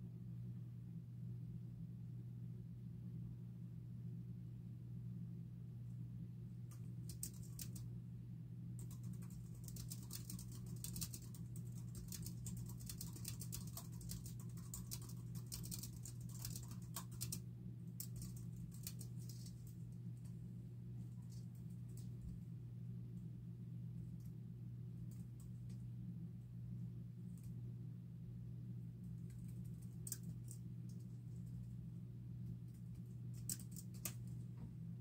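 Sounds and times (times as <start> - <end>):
low steady hum: 0.0 - 35.0
typing on computer keyboard: 7.1 - 7.8, 8.8 - 17.4, 18.0 - 19.4, 33.4 - 34.2.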